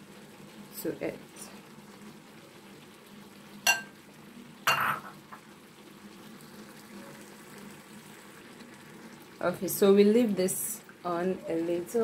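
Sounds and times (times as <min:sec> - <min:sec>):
stew bubbling: 0:01.6 - 0:10.0
kitchenware clinking: 0:03.7 - 0:04.0, 0:04.7 - 0:05.2.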